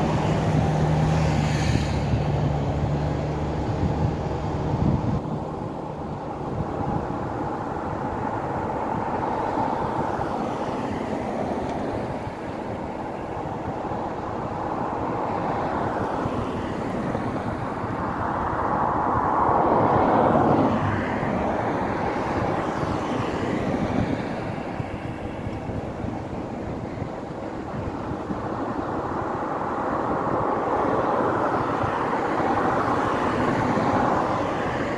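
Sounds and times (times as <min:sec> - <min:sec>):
steady wash of noise: 0:00.0 - 0:34.9
tyres hissing on wet road: 0:07.1 - 0:26.3.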